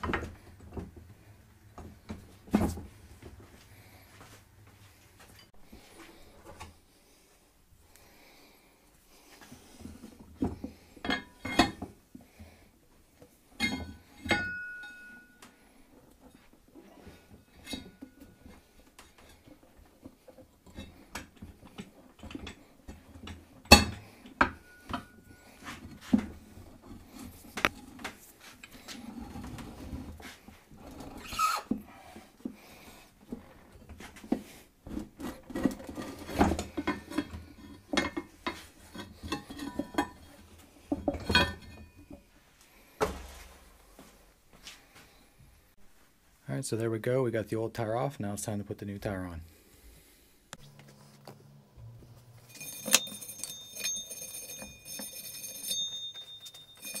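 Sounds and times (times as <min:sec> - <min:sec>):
metal clanks and knocks: 0:13.6 - 0:15.5, 0:33.2 - 0:42.3.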